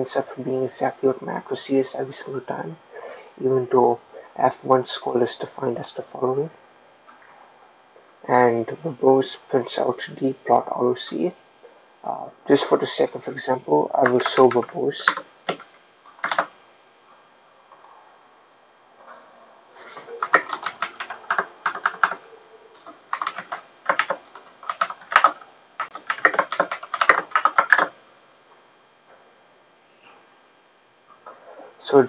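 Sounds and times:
typing on computer keyboard: 14.0s - 16.6s, 20.2s - 22.2s, 22.8s - 28.0s.

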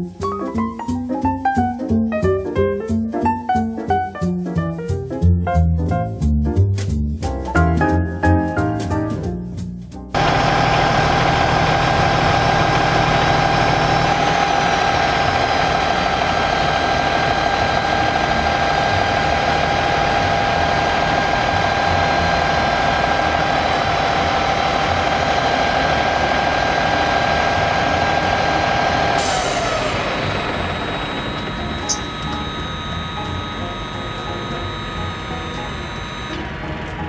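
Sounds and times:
motor and pump whine: 10.2s - 37.0s
truck engine running: 10.2s - 37.0s.

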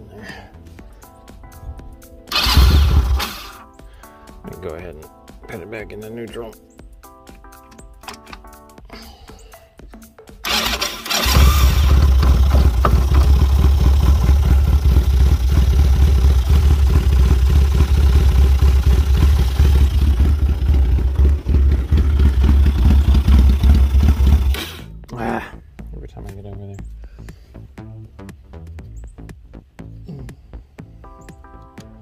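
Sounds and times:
single-cylinder engine idling: 10.4s - 24.9s.

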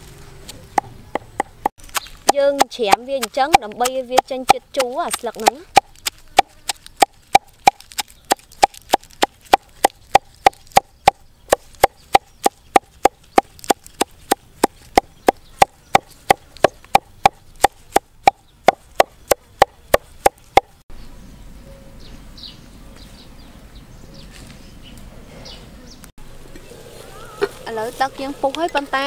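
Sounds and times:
cleaver chopping on wooden block: 0.8s - 20.7s.

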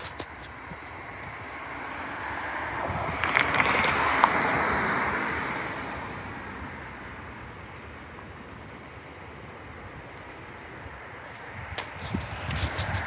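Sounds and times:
vehicle tyre noise passing: 0.0s - 13.0s
sharp knocks of tyres on crossing: 2.8s - 5.8s.

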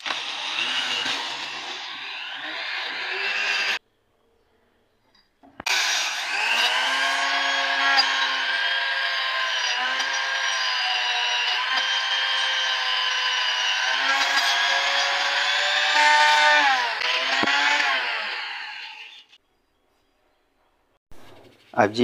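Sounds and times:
electric buffing tool whining: 0.0s - 3.8s, 5.7s - 19.4s.

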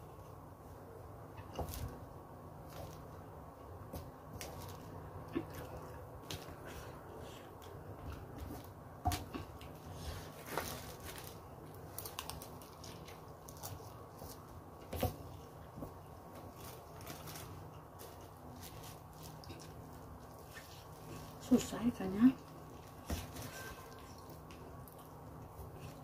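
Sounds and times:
chewing: 16.6s - 21.4s.

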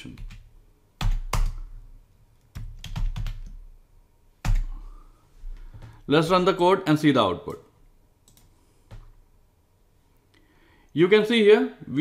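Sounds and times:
typing on a computer keyboard: 0.1s - 1.7s, 2.4s - 3.6s, 8.2s - 9.1s.

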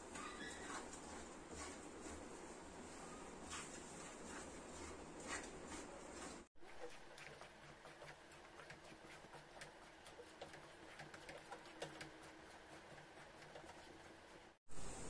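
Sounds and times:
wooden spatula stirring in a pan: 0.1s - 14.6s.

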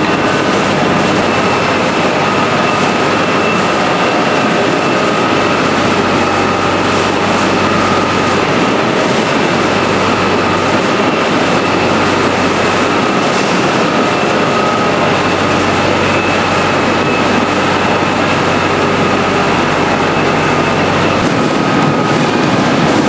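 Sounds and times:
faint high whine: 0.0s - 22.8s
loader engine and machinery drone: 0.0s - 23.0s.

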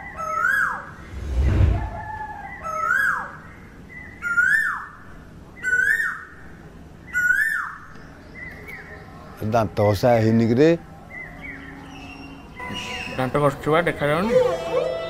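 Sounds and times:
bird calling: 11.1s - 15.0s.

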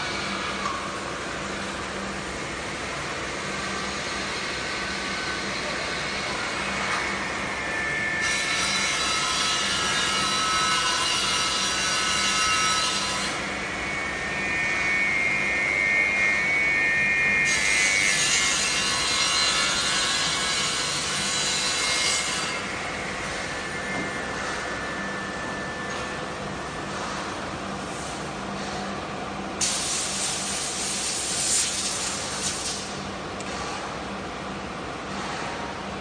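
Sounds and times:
high steady machine whine: 0.0s - 36.0s
circular saw cutting wood: 7.8s - 13.5s, 14.1s - 25.0s
low hum: 22.6s - 28.3s.

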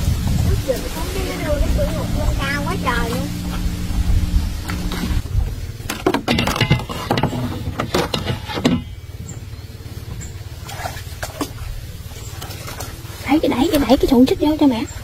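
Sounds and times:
steady low hum: 0.0s - 15.0s
plastic boat and paddle clattering: 5.8s - 9.4s.

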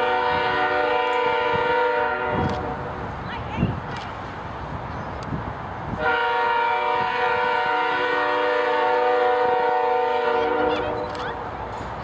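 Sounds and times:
locomotive air horn blast: 0.0s - 2.9s, 6.0s - 11.2s.

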